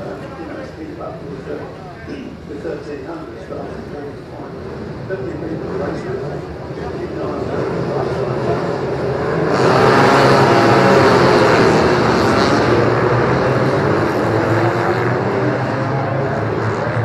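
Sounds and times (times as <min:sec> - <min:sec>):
racing motorcycles passing: 0:03.5 - 0:17.0.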